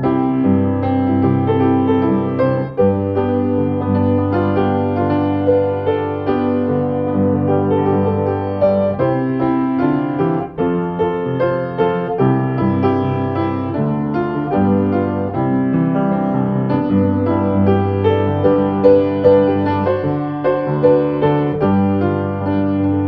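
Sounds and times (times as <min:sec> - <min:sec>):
piano music: 0:00.0 - 0:23.0.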